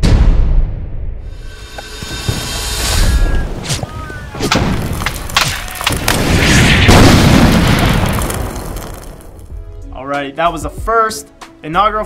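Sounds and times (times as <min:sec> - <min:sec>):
sharp gunshots: 0:04.4 - 0:08.2
loud explosion: 0:04.4 - 0:09.4.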